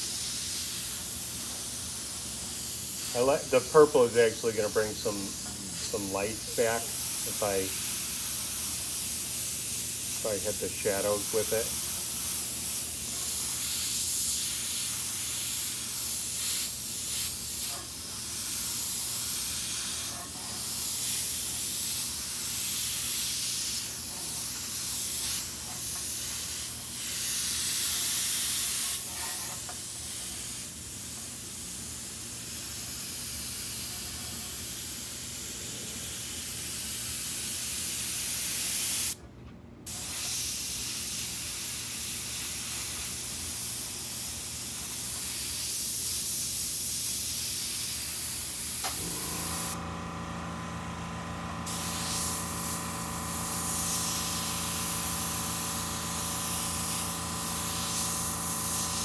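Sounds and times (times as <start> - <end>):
airbrush hissing: 0.0 - 39.2, 39.9 - 50.5, 51.3 - 59.0.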